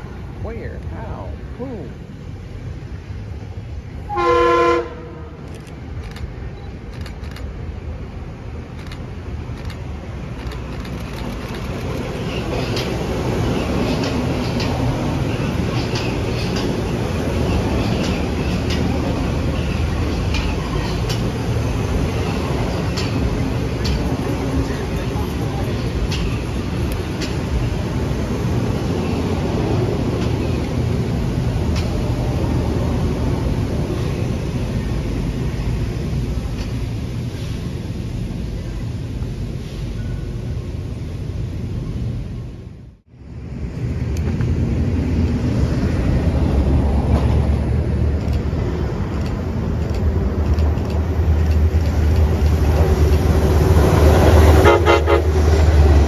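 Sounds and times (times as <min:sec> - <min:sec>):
train rumbling: 0:00.0 - 0:56.0
train horn blast: 0:04.1 - 0:05.4, 0:54.3 - 0:55.8.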